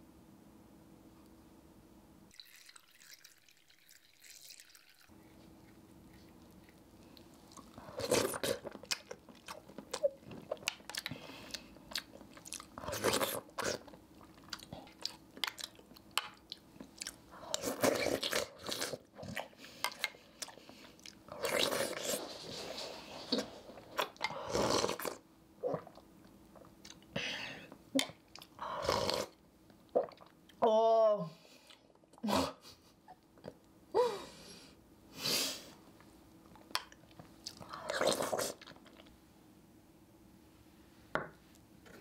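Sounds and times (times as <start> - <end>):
chewing and slurping: 2.4 - 26.0, 36.6 - 39.2.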